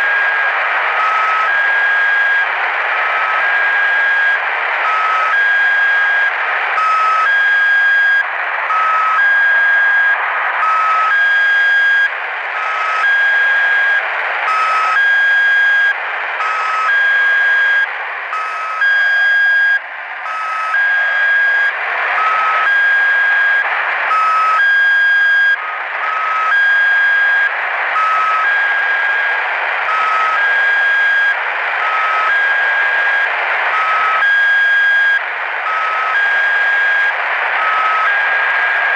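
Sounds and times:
radio band noise hiss: 0.0s - 38.9s
two-tone radio beeps: 0.0s - 38.9s.

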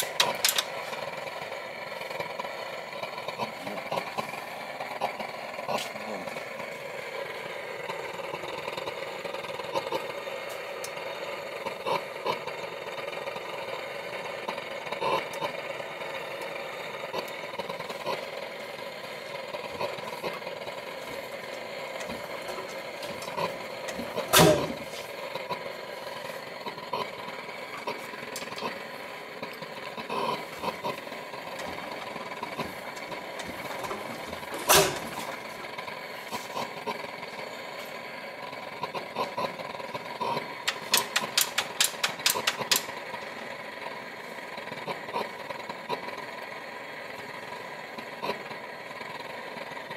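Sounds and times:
engine running mechanically: 0.0s - 49.9s
engine firing pops: 22.0s - 25.1s, 31.5s - 35.6s, 40.7s - 43.0s.

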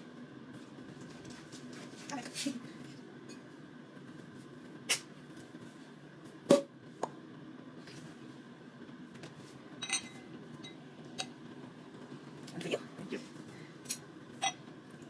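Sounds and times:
glass clinking: 9.8s - 11.3s, 14.4s - 14.6s.

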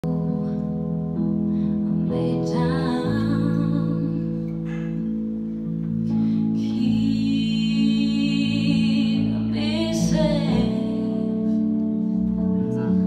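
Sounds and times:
electric bass: 0.0s - 13.0s
keyboard chords: 0.0s - 13.0s
woman singing: 2.0s - 4.6s, 6.5s - 11.8s.

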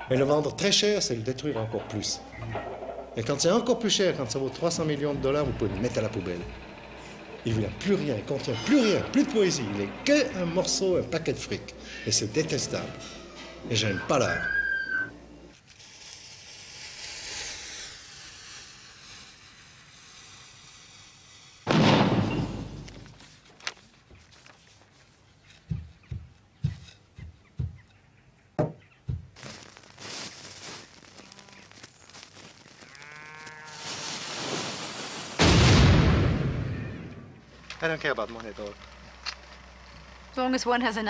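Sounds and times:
firecrackers cracking: 15.5s - 23.2s, 29.4s - 36.7s
explosive bangs: 21.7s - 22.9s, 35.4s - 37.4s
rising rush into loud blast: 34.0s - 37.4s.

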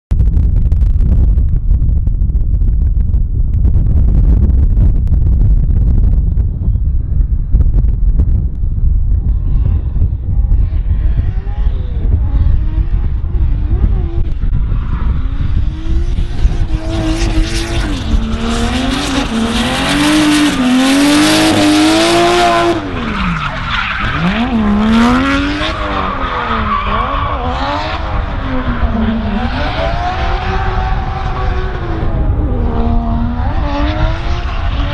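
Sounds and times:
car engine revving: 9.2s - 34.9s.

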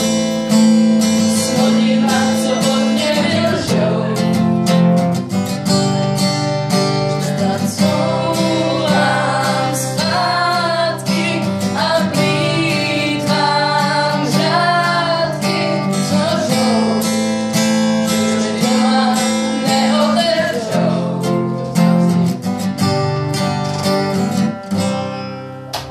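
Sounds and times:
acoustic guitar strumming: 0.0s - 25.9s
woman singing: 1.1s - 4.8s, 7.1s - 22.0s.

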